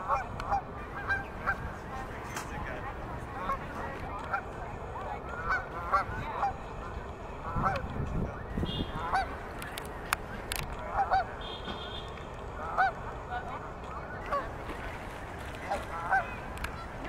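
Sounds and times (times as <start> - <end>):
geese honking: 0.0 - 1.7, 3.4 - 4.6, 5.2 - 7.9, 8.5 - 10.2, 10.8 - 14.6, 15.6 - 16.9.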